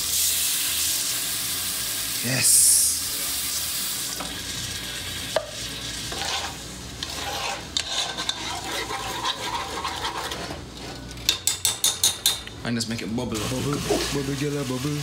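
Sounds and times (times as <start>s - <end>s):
sauce bubbling and stirring: 5.4s - 12.5s.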